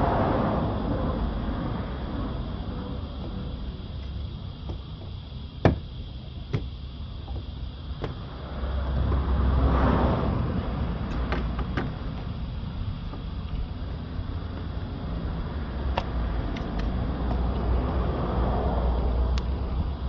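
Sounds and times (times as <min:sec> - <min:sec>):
clicks and knocks on car door: 0:04.6 - 0:05.9, 0:07.3 - 0:08.2, 0:11.1 - 0:11.9.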